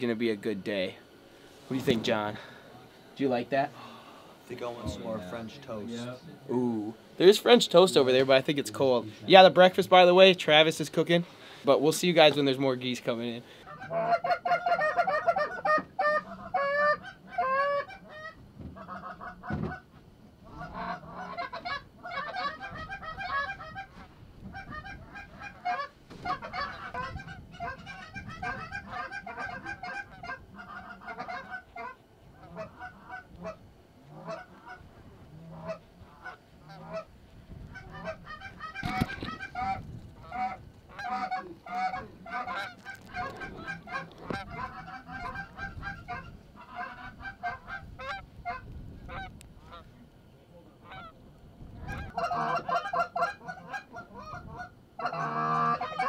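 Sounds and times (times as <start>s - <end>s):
goose honking: 13.6s - 49.9s, 50.8s - 51.2s, 51.8s - 56.0s.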